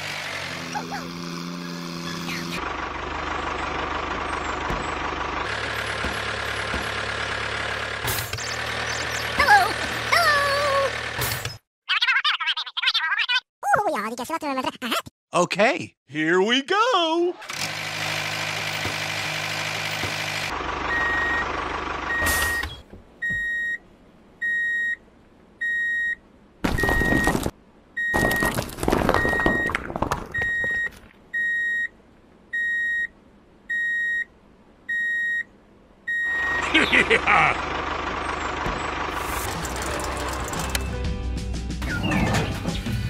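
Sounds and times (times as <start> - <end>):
motor-like drone: 0.0 - 2.6
reversing alarm beeping: 20.9 - 21.5, 22.1 - 23.8, 30.3 - 31.9, 32.6 - 33.1, 34.9 - 35.5, 36.1 - 36.7.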